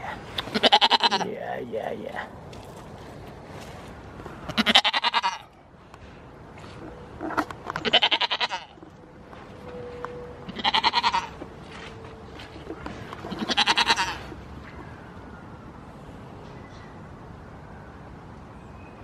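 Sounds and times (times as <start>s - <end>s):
goat bleating: 0.4s - 2.2s, 4.5s - 5.5s, 7.8s - 8.8s, 10.5s - 11.4s, 13.2s - 14.4s.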